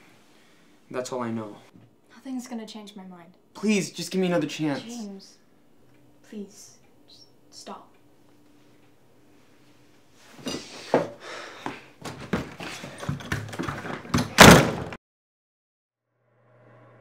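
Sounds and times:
door slamming shut: 0:14.0 - 0:15.0.

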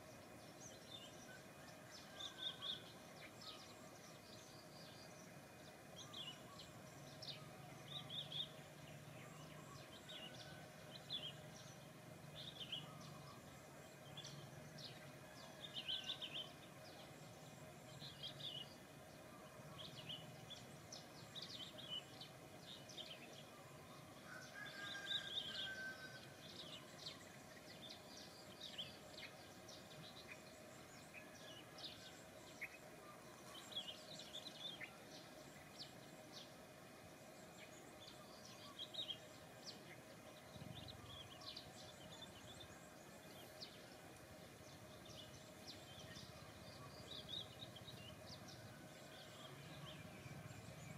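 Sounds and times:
birds chirping: 0:00.0 - 0:50.9
low steady hum: 0:00.0 - 0:50.9.

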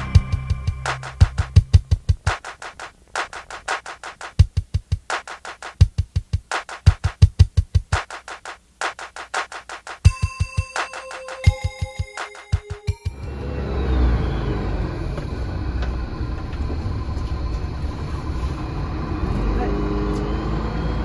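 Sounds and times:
low drum hits: 0:00.0 - 0:02.3
fast beat background music: 0:00.0 - 0:13.2.

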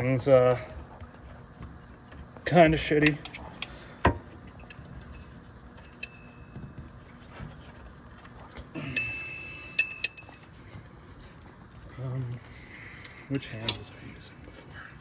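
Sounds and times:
metal tools clinking on metal: 0:04.4 - 0:06.6, 0:08.8 - 0:10.6, 0:13.1 - 0:14.3.

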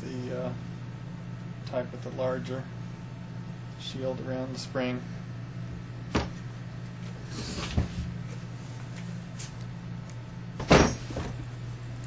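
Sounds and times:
steady low hum: 0:00.0 - 0:12.0
motor knocking on wooden workbench: 0:06.1 - 0:06.4.

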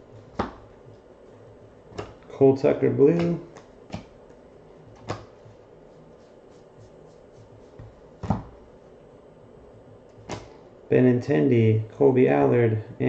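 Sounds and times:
cards flicking: 0:05.0 - 0:05.4, 0:10.2 - 0:10.6.

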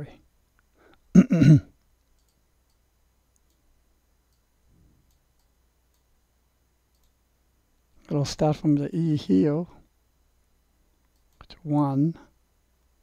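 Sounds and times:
faint sharp clicks: 0:01.8 - 0:03.7, 0:06.9 - 0:07.2.

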